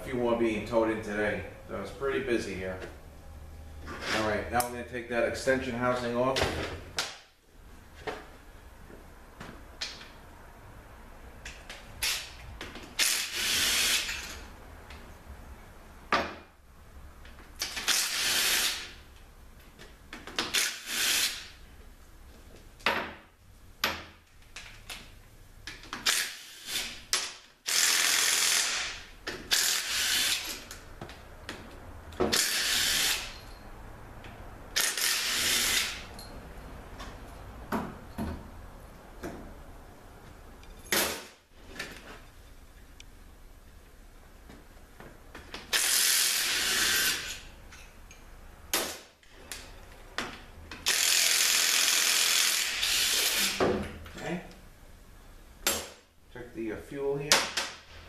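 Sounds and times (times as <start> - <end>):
ratchet wrench clicking: 13.0 - 14.3, 26.0 - 27.0, 27.7 - 30.8, 32.3 - 33.4, 34.8 - 36.1, 50.8 - 53.6.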